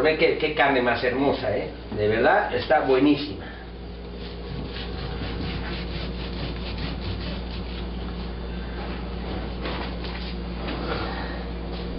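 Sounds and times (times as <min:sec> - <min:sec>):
steady low hum: 0:00.0 - 0:11.9
knife sawing through meat: 0:04.2 - 0:07.9.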